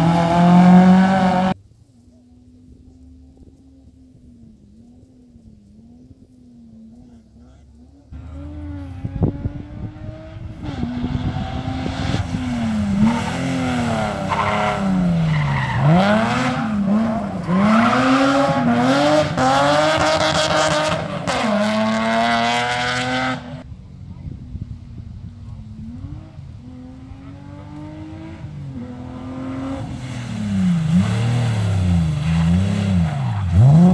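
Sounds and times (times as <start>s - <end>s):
rally car engine driving past: 3.1s - 23.7s.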